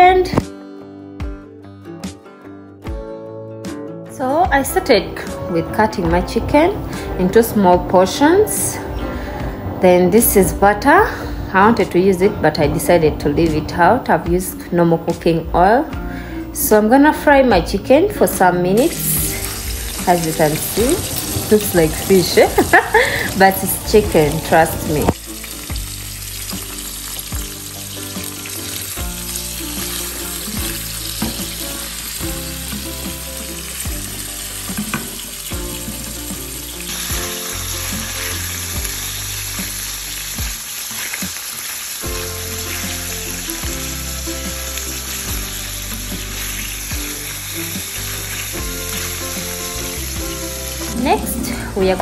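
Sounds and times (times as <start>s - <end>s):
background music with bass line: 0.0s - 40.6s, 42.0s - 52.0s
chicken sizzling in oil: 18.7s - 52.0s.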